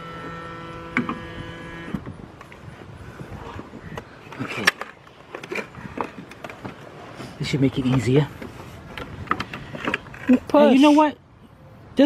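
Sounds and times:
hydraulic pump motor humming: 0.0s - 2.7s.

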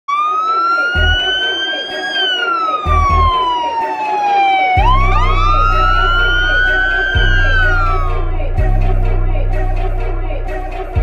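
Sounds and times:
police siren wailing: 0.1s - 11.0s
deep bass notes: 1.0s - 1.2s, 2.9s - 3.4s, 4.8s - 11.0s.

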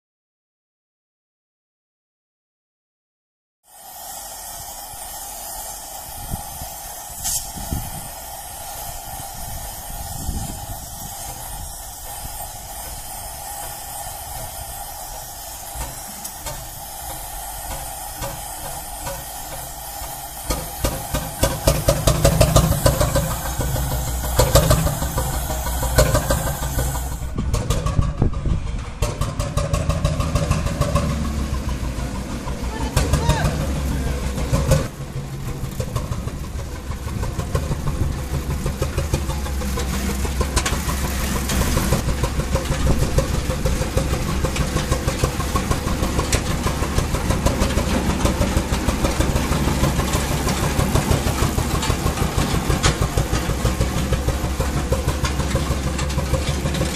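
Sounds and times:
gas torch hissing: 3.6s - 27.4s
engine running with uneven beats: 3.7s - 56.9s.

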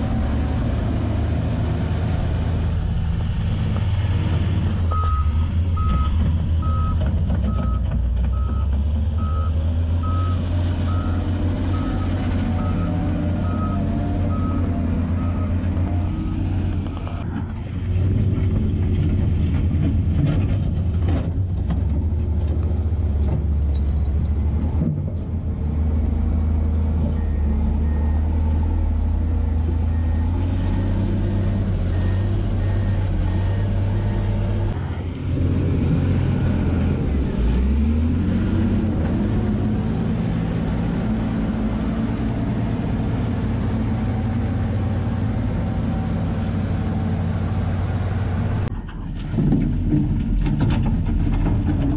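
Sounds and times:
diesel engine running: 0.0s - 51.9s
reversing alarm beeping: 4.9s - 16.1s, 29.2s - 34.6s.

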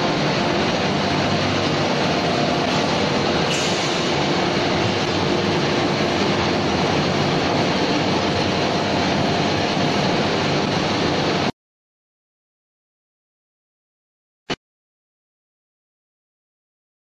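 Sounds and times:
loud machinery noise: 0.0s - 11.5s.

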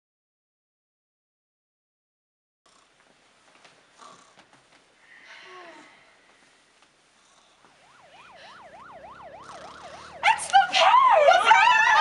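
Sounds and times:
overlapping wailing tones: 7.7s - 12.0s
siren-like wail: 7.7s - 12.0s.

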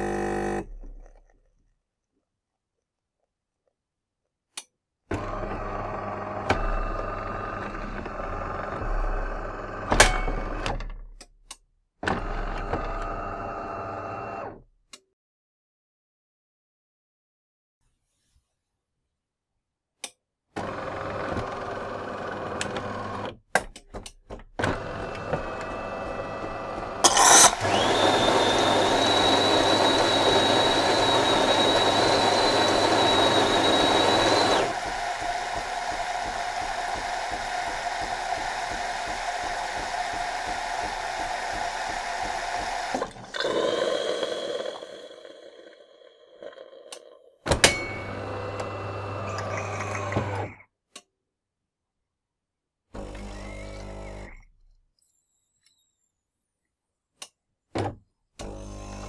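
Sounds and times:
coffee machine pump hum: 0.0s - 0.8s, 25.2s - 45.8s
milk running into cup: 27.2s - 47.2s
steam hiss with high whistle: 28.8s - 42.7s.

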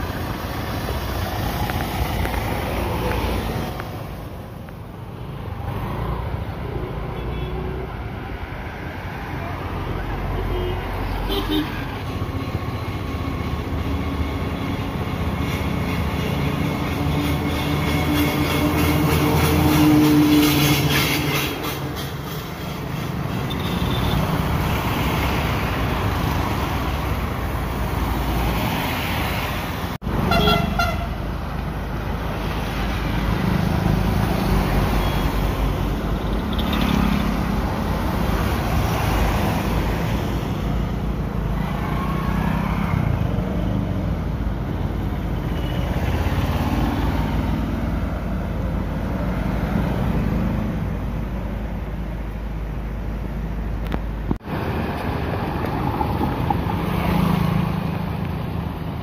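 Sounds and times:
traffic on wet road: 0.0s - 59.0s
vehicle horn: 30.2s - 31.2s.

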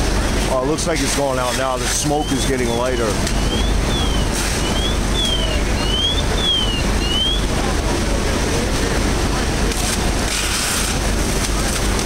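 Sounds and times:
fire rumbling: 0.0s - 12.0s
electronic siren sweeping: 2.2s - 7.6s.

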